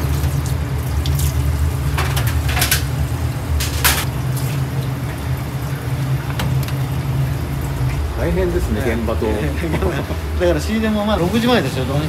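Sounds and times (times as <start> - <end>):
kitchen machinery hum: 0.0 - 12.0
fish clattering in metal sink: 1.2 - 3.0, 3.6 - 4.6.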